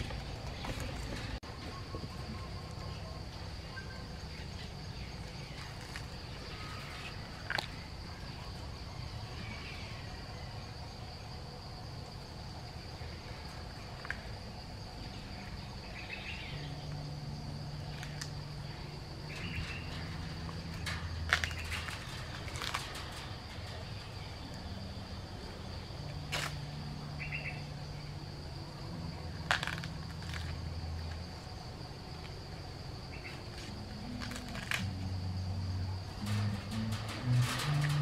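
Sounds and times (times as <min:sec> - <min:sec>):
high-pitched insect drone: 0:01.6 - 0:38.0
corn husk crackling: 0:19.3 - 0:24.6, 0:33.3 - 0:35.0, 0:36.1 - 0:38.0.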